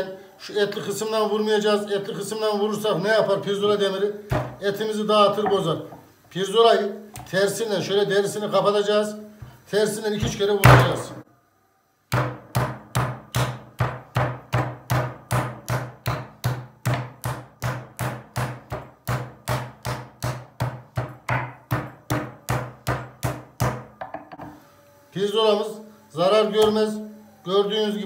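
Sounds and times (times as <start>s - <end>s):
meat pounder thudding on board: 4.3s - 4.6s, 10.2s - 11.1s, 12.1s - 24.5s.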